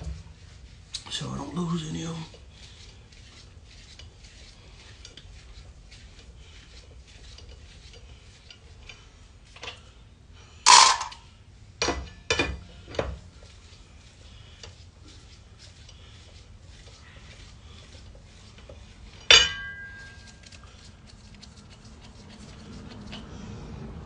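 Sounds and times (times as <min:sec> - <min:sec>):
wrench and lug nuts clanking: 0:10.7 - 0:11.2, 0:19.2 - 0:20.0
ringing metal clank: 0:19.3 - 0:20.0.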